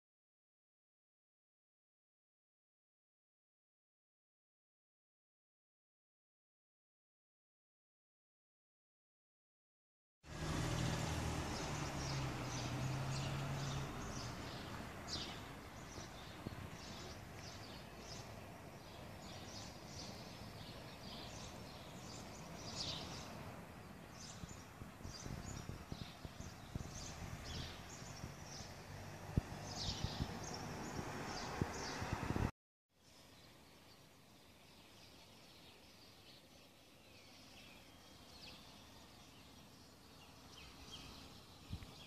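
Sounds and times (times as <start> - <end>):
outdoor background noise: 10.2 - 42.0
small birds chirping: 10.3 - 42.0.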